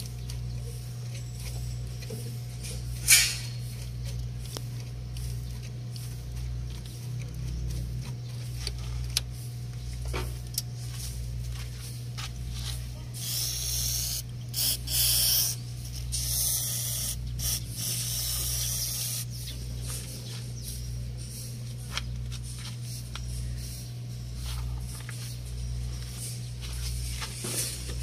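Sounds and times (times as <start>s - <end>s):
aerosol can spraying: 13.2s - 19.3s.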